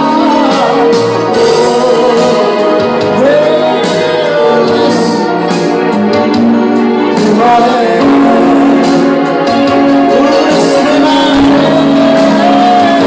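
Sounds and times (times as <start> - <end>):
man singing into a microphone: 0.0 - 5.8, 7.0 - 13.0
electric guitar: 0.0 - 13.0.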